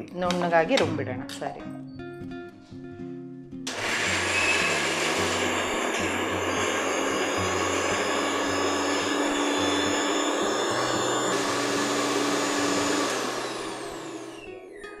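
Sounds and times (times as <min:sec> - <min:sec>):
mixer grinder motor running: 0:03.7 - 0:14.8
motor winding down whine: 0:03.7 - 0:14.8.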